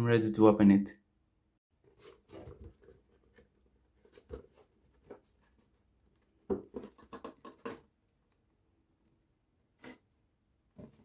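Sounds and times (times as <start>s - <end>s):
cardboard box taps and scrapes: 6.4s - 7.8s.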